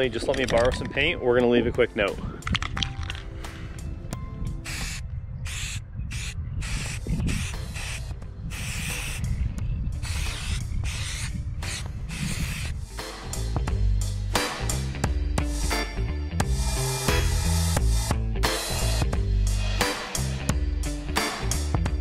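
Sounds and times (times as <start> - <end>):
spray can hissing bursts: 4.7 - 9.2, 10.0 - 12.9, 18.5 - 19.0.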